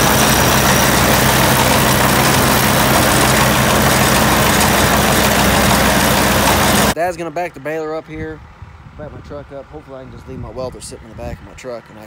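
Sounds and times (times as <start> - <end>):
baler belts and rollers turning: 0.0 - 7.0
tractor engine droning: 0.0 - 7.8.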